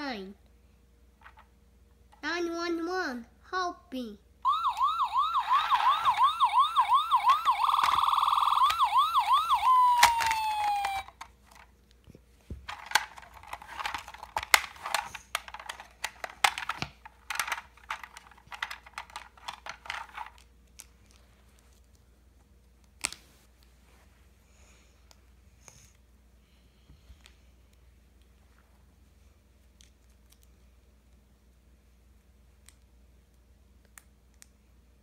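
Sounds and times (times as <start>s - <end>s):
toy electronic siren: 4.4s - 11.2s.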